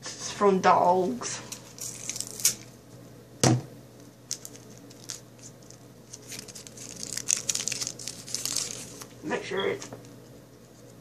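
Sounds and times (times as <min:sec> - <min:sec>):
paper wrapper crinkling: 0:01.4 - 0:02.8, 0:04.2 - 0:09.2.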